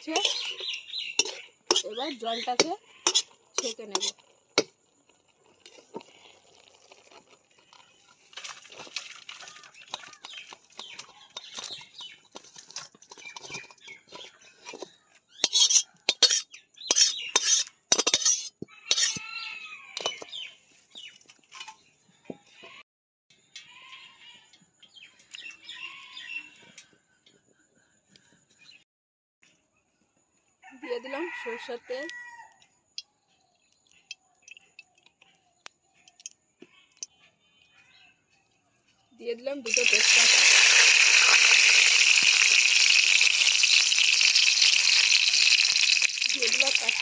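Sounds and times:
spatula scraping metal: 0:00.0 - 0:04.7, 0:08.3 - 0:19.2
water pouring into colander: 0:05.7 - 0:11.8, 0:39.7 - 0:47.0.

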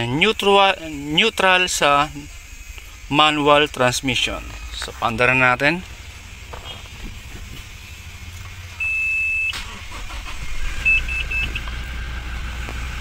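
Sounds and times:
diesel engine cranking and idling: 0:00.0 - 0:13.0
steady warning beep: 0:00.4 - 0:05.8, 0:08.7 - 0:09.7, 0:10.8 - 0:11.7
short dashboard chimes: 0:04.1 - 0:05.8, 0:08.7 - 0:11.7.

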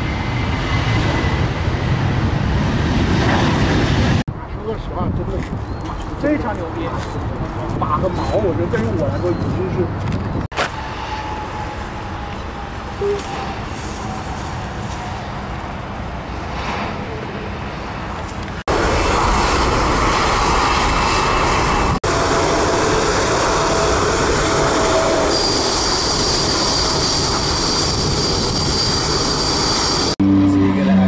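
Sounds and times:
jet engines roaring: 0:00.0 - 0:31.0
high steady whine: 0:10.5 - 0:15.5, 0:18.4 - 0:31.0.

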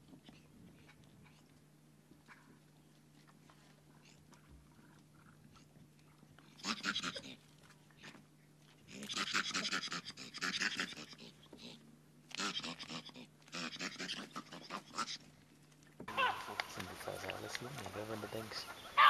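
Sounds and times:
faint steady hum: 0:00.0 - 0:19.0
harsh rapid animal calls: 0:06.6 - 0:07.4, 0:08.9 - 0:15.3, 0:16.1 - 0:19.0.

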